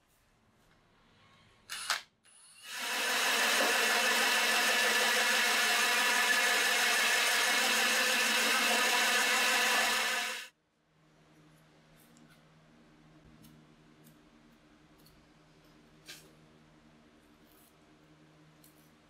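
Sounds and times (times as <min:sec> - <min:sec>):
drill hole saw cutting plywood: 0:01.8 - 0:10.5.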